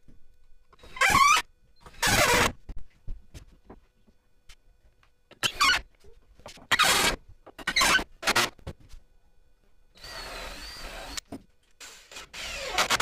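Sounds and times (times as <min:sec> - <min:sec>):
cordless drill whining: 0:10.0 - 0:11.2, 0:11.8 - 0:13.0.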